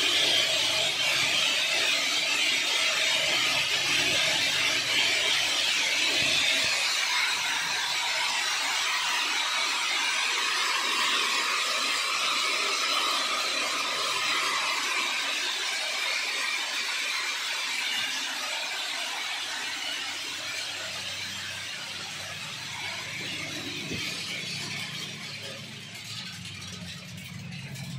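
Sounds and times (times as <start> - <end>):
seeds rattling on metal: 2.2 - 8.0, 18.9 - 27.9.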